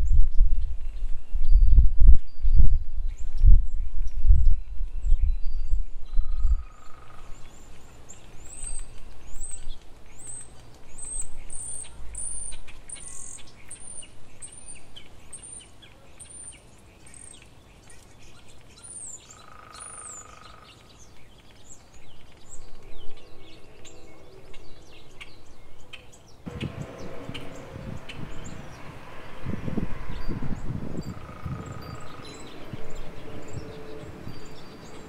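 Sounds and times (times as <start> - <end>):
low rumble: 26.5 - 35.0.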